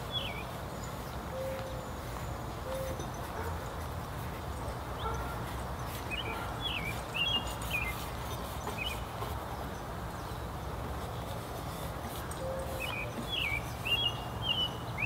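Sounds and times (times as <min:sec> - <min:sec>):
songbird chirping: 0:00.0 - 0:03.3, 0:12.3 - 0:15.0.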